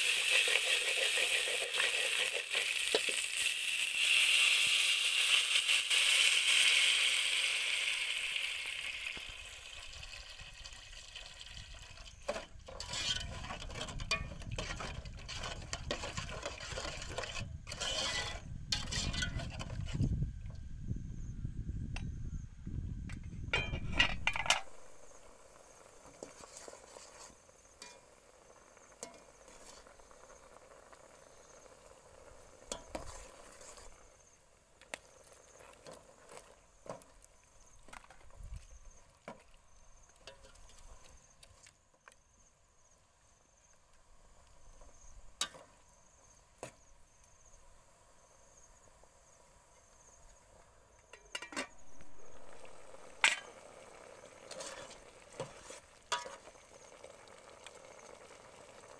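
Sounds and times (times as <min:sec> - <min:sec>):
insects chirring: 0:00.0 - 0:58.9
ladle stirring in pot: 0:09.8 - 0:20.1, 0:25.8 - 0:31.2, 0:32.2 - 0:34.1, 0:51.1 - 0:58.9
ladle clinking against pot: 0:51.1 - 0:51.8.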